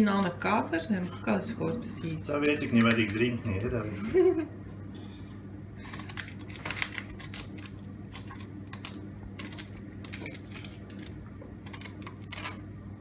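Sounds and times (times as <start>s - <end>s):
shallot skins crackling: 0.0s - 4.1s, 5.8s - 13.0s
steady low hum: 0.0s - 13.0s.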